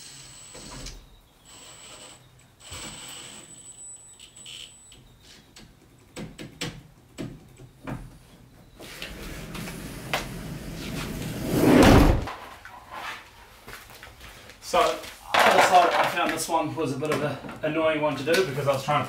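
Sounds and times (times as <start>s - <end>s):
rising rush of noise: 9.1s - 12.4s
loud thump: 11.4s - 12.3s.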